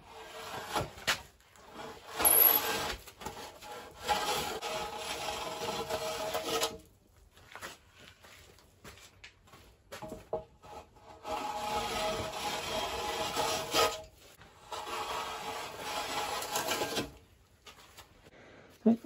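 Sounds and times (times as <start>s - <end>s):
hand plane shaving timber: 0.0s - 6.8s, 10.6s - 17.2s.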